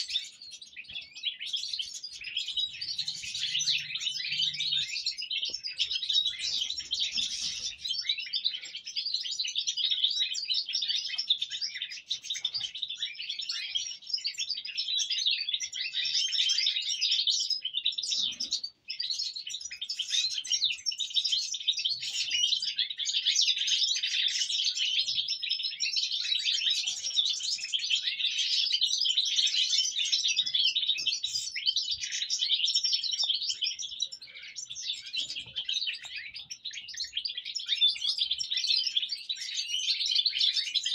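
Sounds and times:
goldfinches twittering: 0.1 - 8.5.

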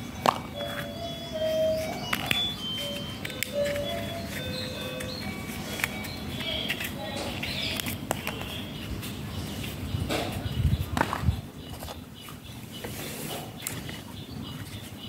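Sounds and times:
coconut shells clicking and knocking: 0.0 - 1.0, 1.8 - 8.8.

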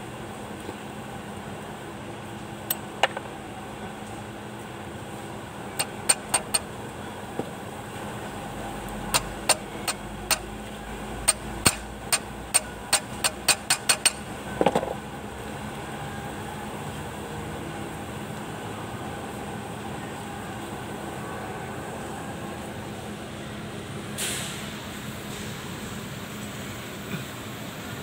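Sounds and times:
small hammer tapping metal: 5.8 - 6.7, 9.1 - 10.5, 11.3 - 14.2.

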